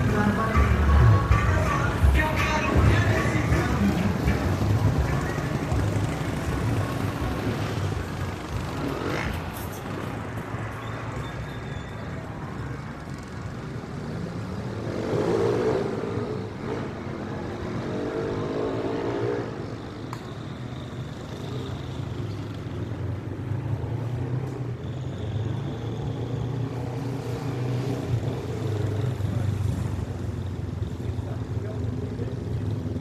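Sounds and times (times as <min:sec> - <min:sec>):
vehicle accelerating: 0:00.0 - 0:11.2, 0:13.0 - 0:20.0
cars passing: 0:00.0 - 0:33.0.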